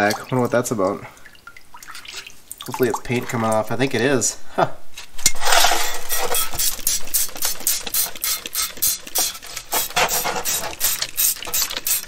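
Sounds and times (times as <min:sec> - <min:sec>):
stiff brush scrubbing metal: 0:05.2 - 0:12.0.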